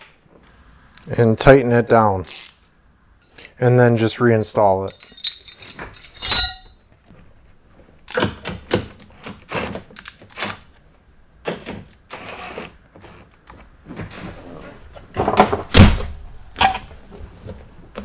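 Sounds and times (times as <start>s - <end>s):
sharp metal clink: 4.9s - 6.8s.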